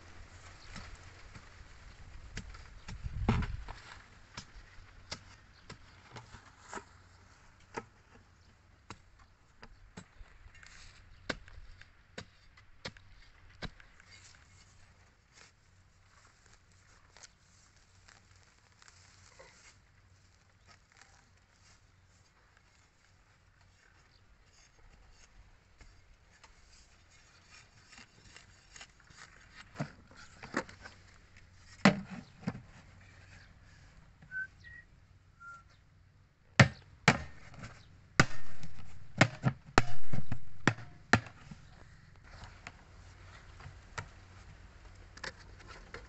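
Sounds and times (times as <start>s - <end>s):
hoe and bucket knocking in soil: 2.3s - 6.9s, 31.6s - 32.8s, 36.6s - 41.8s.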